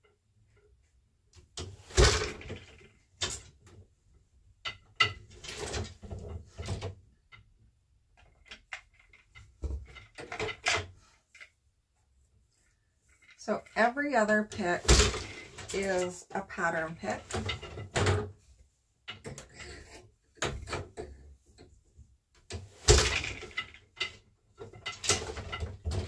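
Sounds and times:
loom wooden knocks: 8.2s - 11.4s, 13.2s - 18.4s, 22.4s - 26.0s.

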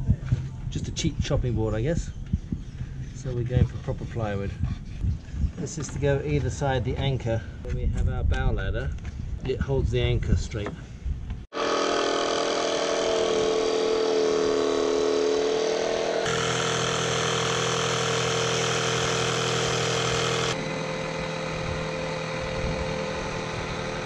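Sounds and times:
jigsaw cutting plywood: 11.5s - 24.0s.

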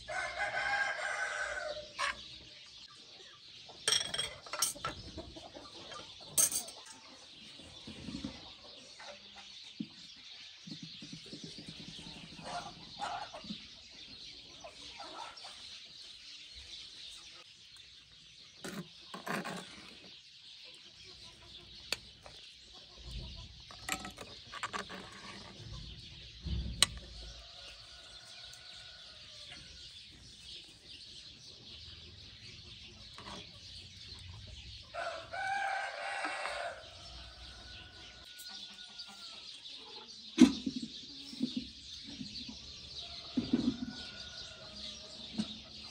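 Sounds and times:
chickens clucking: 0.0s - 45.9s
metal spoon clinking on pot: 3.9s - 4.9s, 6.4s - 7.0s, 23.7s - 24.9s.

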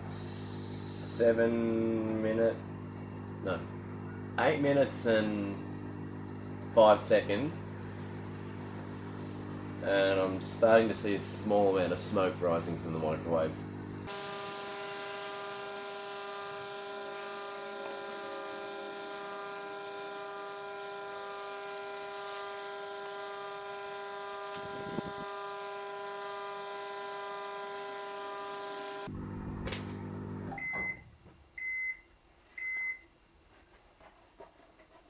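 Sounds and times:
microwave oven humming: 0.0s - 33.1s.

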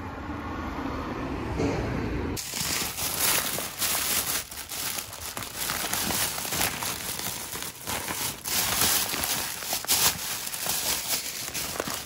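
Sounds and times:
plastic bag crinkling: 2.4s - 12.0s.

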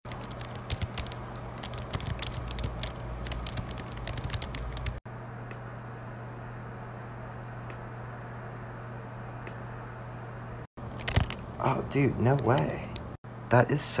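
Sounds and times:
rapid typing on laptop keyboard: 0.0s - 5.0s, 11.0s - 11.4s
low steady hum: 0.1s - 14.0s.

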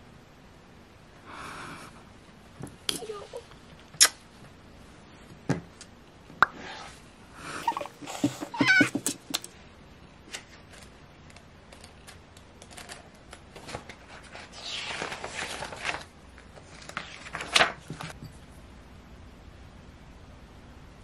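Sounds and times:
pages flipping and rustling: 10.3s - 18.2s
paper taps and crinkles: 15.2s - 18.2s.

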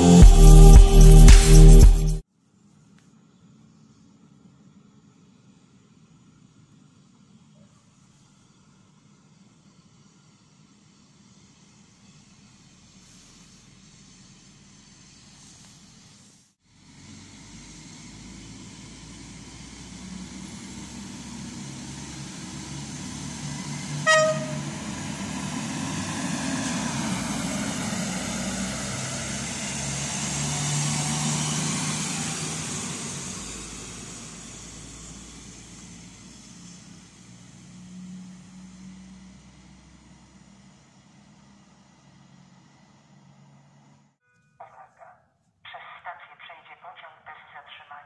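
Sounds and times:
train passing by: 6.3s - 44.1s
train horn blast: 23.9s - 25.0s.

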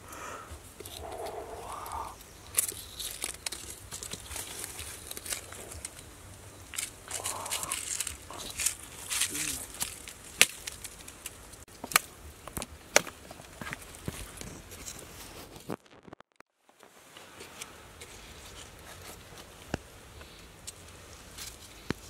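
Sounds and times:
hands scraping dry soil: 0.0s - 11.7s, 17.2s - 22.0s
dead leaves rustling: 0.2s - 12.0s.

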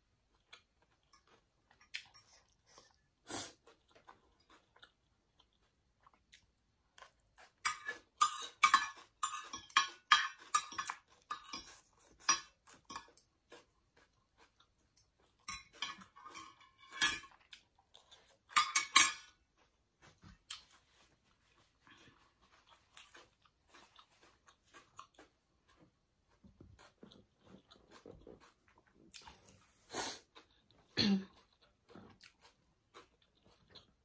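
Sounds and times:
cutlery scraping a plate: 7.6s - 13.2s, 15.4s - 17.4s, 18.5s - 19.4s
cutlery clattering onto plate: 7.7s - 13.1s, 15.5s - 17.4s, 18.5s - 19.3s.

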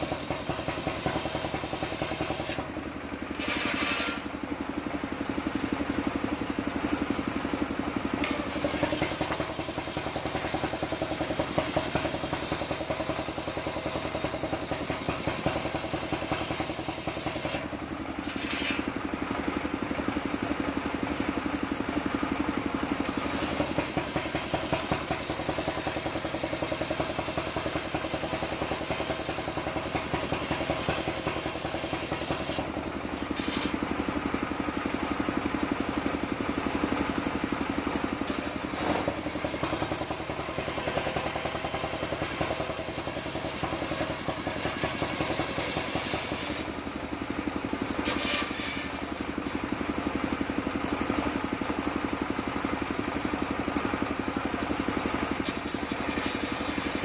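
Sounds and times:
circular saw blade cutting wood: 0.0s - 2.7s, 3.3s - 4.3s, 8.2s - 13.4s, 14.0s - 19.0s, 23.0s - 33.8s, 38.2s - 46.7s, 48.0s - 49.1s, 55.4s - 57.0s
sawmill engine under load: 0.0s - 57.0s.

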